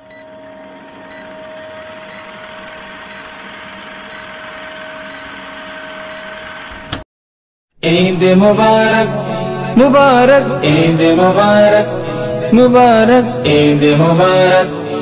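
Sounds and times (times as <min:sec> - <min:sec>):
film projector whirring: 0:00.0 - 0:07.0
short blips: 0:00.0 - 0:07.0.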